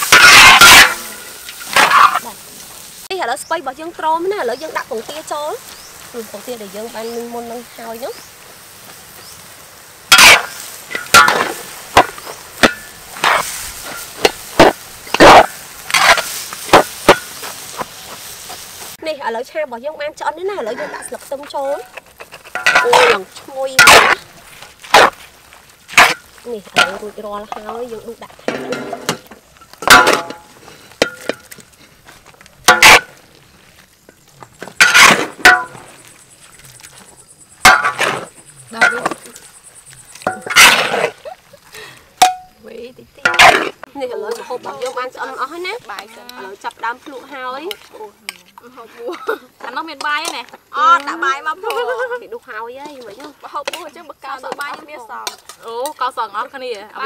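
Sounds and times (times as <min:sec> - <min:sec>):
loud ringing scrapes: 0:00.0 - 0:02.2
metal ladle scraping a wok: 0:00.0 - 0:02.8, 0:09.2 - 0:19.0, 0:20.7 - 0:25.2
metal spatula scraping wok: 0:00.0 - 0:03.1, 0:09.0 - 0:19.0, 0:20.6 - 0:25.3, 0:25.9 - 0:33.2, 0:34.6 - 0:41.4, 0:43.2 - 0:48.5.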